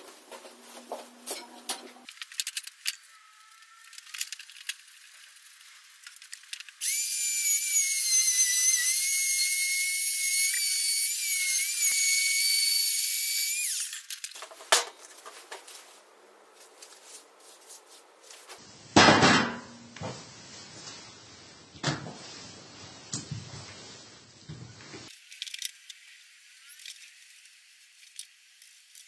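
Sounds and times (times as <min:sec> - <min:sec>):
angle grinder whining: 0:06.8 - 0:14.2.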